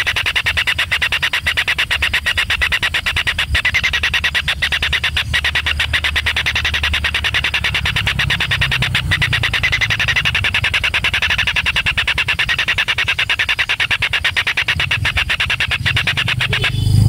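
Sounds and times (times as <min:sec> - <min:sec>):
rapid pulsing animal call: 0:00.0 - 0:17.0.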